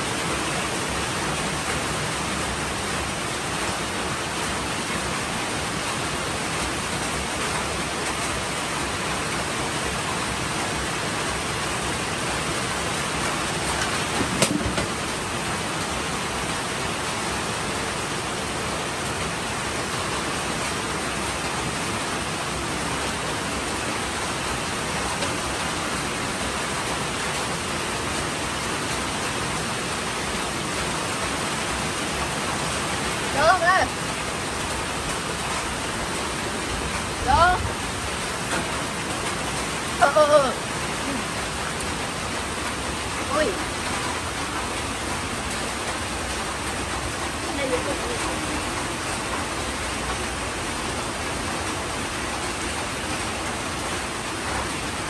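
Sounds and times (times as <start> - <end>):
sharp knock: 14.2 - 14.9.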